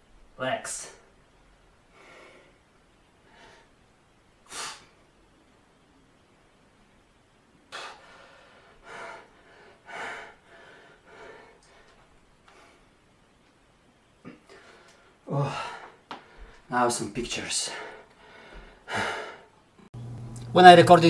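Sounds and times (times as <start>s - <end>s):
man breathing hard: 1.9s - 2.6s, 7.7s - 12.9s, 14.4s - 16.7s, 17.7s - 19.6s.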